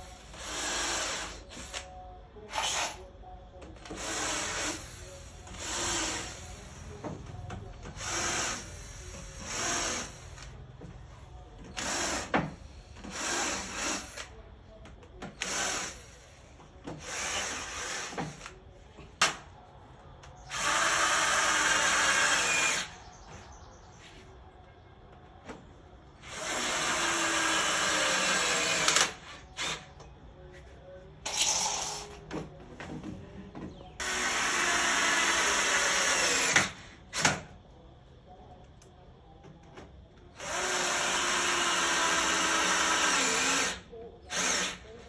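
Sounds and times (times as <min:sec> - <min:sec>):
cordless drill drilling into wood: 0:11.8 - 0:12.4, 0:13.1 - 0:14.3, 0:15.4 - 0:16.0, 0:20.5 - 0:22.9, 0:26.2 - 0:29.8, 0:34.0 - 0:36.8, 0:40.4 - 0:44.8.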